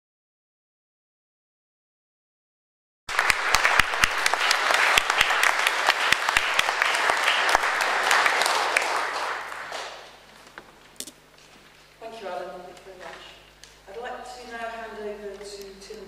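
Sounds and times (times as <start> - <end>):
audience applauding: 3.1 - 10.2.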